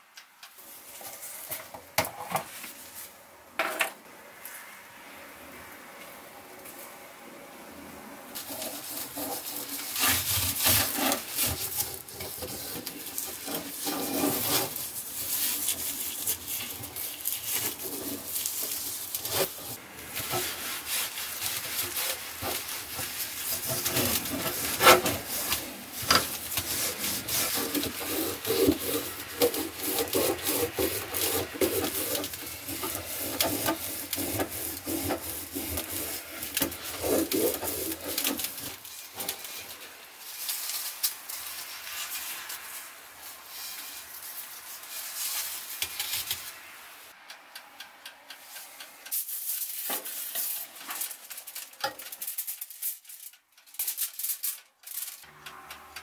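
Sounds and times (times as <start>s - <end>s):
cloth wiping and scrubbing pan: 8.4s - 46.0s.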